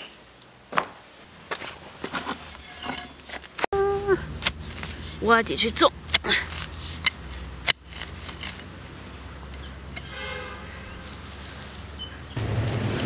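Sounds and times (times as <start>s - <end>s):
digging tool striking soil: 4.3s - 8.8s.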